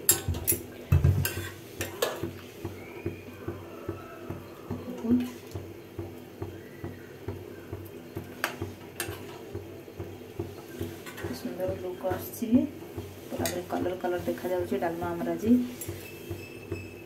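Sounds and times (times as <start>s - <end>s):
metal ladle scraping a pan: 1.2s - 2.4s, 13.0s - 16.4s.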